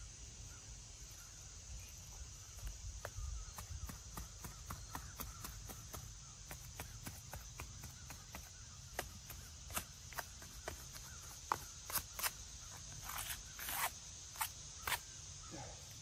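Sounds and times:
insects droning: 0:00.0 - 0:16.0
clicks and scrapes on stone: 0:09.0 - 0:15.0.

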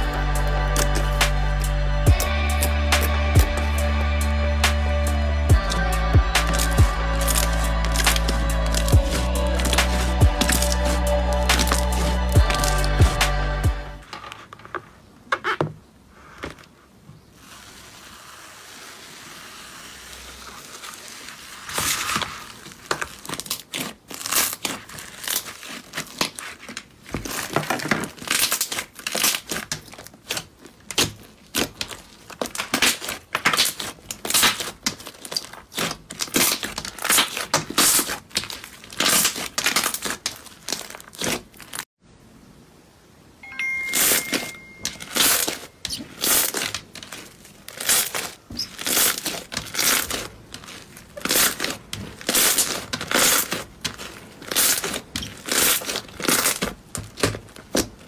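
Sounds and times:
faint steady hiss: 0:13.3 - 0:27.2, 0:42.0 - 0:52.2
slime squelching and popping: 0:22.1 - 0:41.8.

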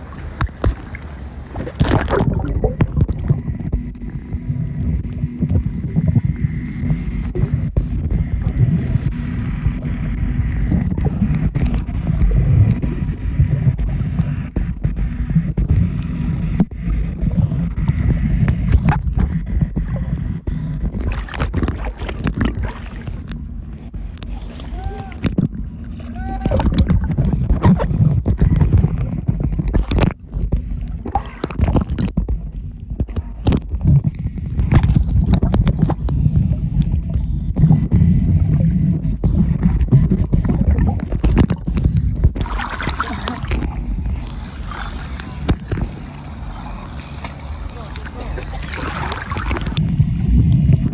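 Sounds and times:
water knocks and splashes: 0:00.0 - 0:04.1, 0:20.8 - 0:24.4, 0:25.2 - 0:46.3, 0:47.1 - 0:50.9
boat engine rumble: 0:00.0 - 0:50.9
wind buffeting microphone: 0:00.0 - 0:50.9.

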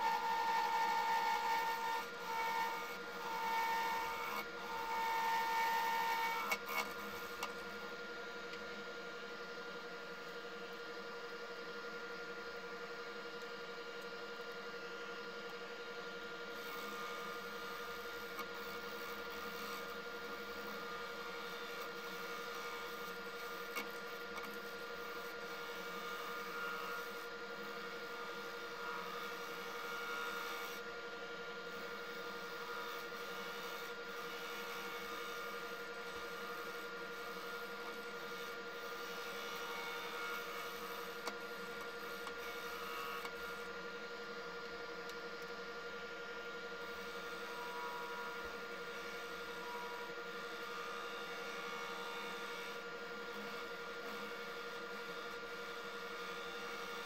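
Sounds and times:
gouge scraping spinning blank: 0:00.0 - 0:07.5
lathe motor whine: 0:00.0 - 0:57.0.

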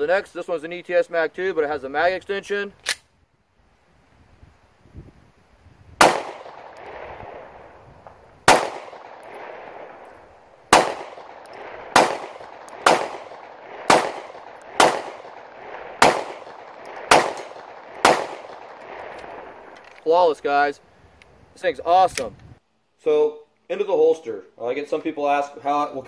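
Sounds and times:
pistol shots with echo: 0:06.0 - 0:07.7, 0:08.4 - 0:19.7.

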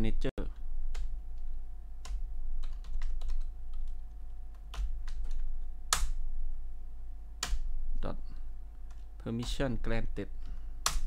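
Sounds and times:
steady low hum: 0:00.0 - 0:11.0
keyboard keys clicking: 0:00.9 - 0:06.2.

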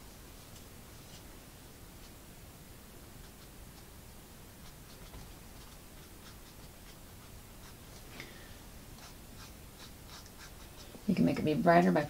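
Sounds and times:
paintbrush scratching on canvas: 0:03.2 - 0:08.1, 0:08.9 - 0:11.5.

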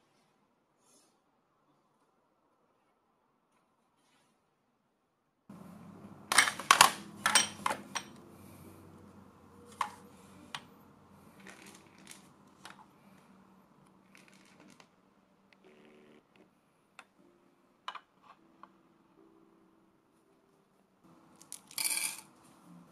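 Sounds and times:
low steady hum: 0:05.5 - 0:17.9
hard objects clacking on table: 0:06.3 - 0:08.2.

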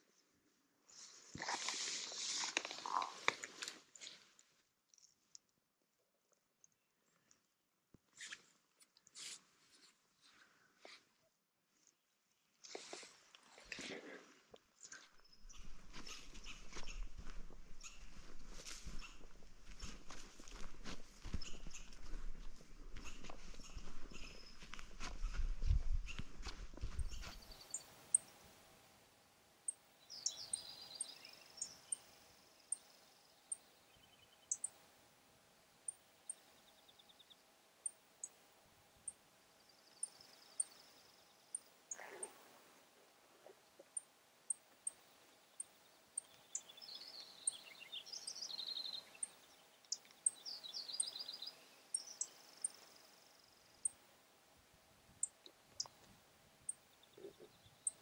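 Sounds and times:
footsteps on dirt trail: 0:14.9 - 0:27.8
birds chipping: 0:15.1 - 0:28.7, 0:29.7 - 0:35.0, 0:43.4 - 0:54.1, 0:55.2 - 0:58.0
bird song phrase: 0:30.0 - 0:32.0, 0:45.5 - 0:52.8
songbird trilling: 0:30.1 - 0:32.1, 0:34.0 - 0:34.7.

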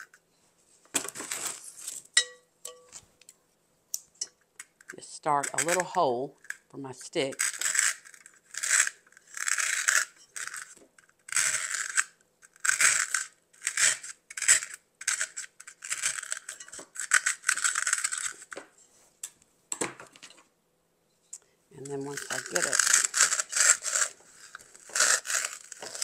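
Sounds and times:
scissors scraping styrofoam: 0:05.4 - 0:06.0, 0:07.3 - 0:18.6, 0:21.8 - 0:26.0.

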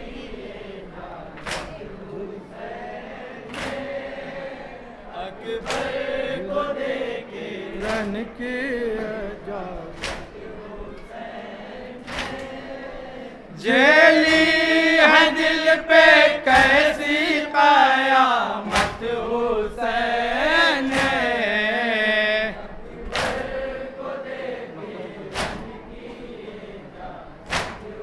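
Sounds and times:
men chanting in chorus: 0:00.0 - 0:28.0
unison chest slaps: 0:01.4 - 0:01.8, 0:03.5 - 0:03.9, 0:05.6 - 0:06.0, 0:10.0 - 0:10.4, 0:12.0 - 0:12.5, 0:18.7 - 0:19.1, 0:20.9 - 0:21.3, 0:23.1 - 0:23.5, 0:25.3 - 0:25.7, 0:27.5 - 0:28.0.

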